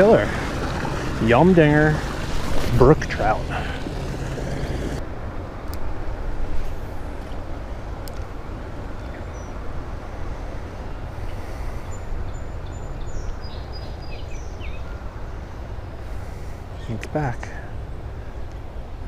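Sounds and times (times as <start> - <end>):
wind rumble on microphone: 0.0 - 16.8.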